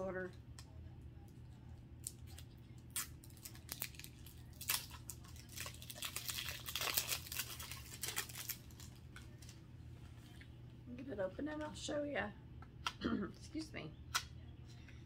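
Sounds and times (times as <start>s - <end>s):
plastic packaging crinkling and tearing: 2.0s - 9.6s.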